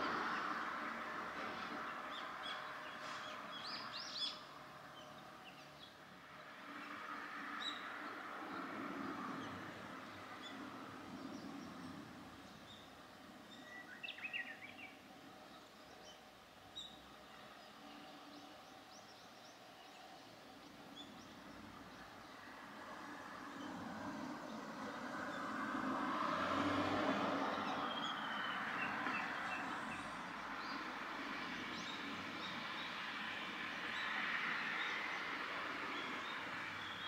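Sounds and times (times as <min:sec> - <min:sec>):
bird chirping: 0:10.4 - 0:22.3.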